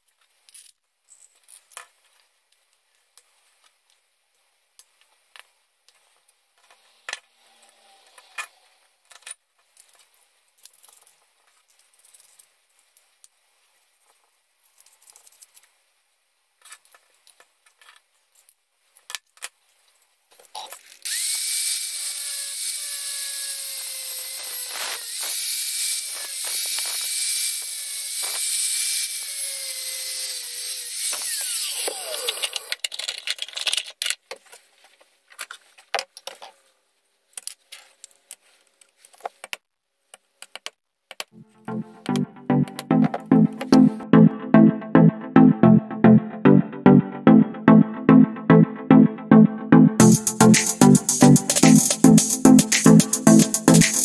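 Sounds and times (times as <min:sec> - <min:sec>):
small metal parts clicking: 0:08.2 - 0:12.5, 0:14.8 - 0:15.7, 0:32.2 - 0:34.2
angle grinder cutting steel: 0:21.1 - 0:32.7.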